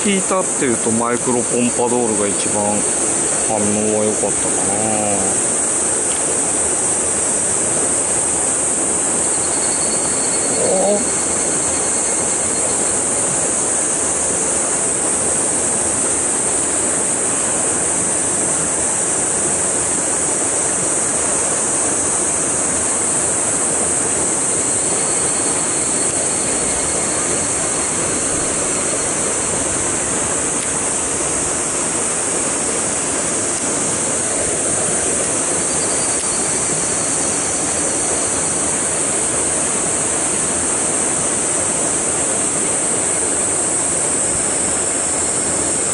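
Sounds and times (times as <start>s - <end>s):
stream pouring into rock pool: 0.0s - 9.0s.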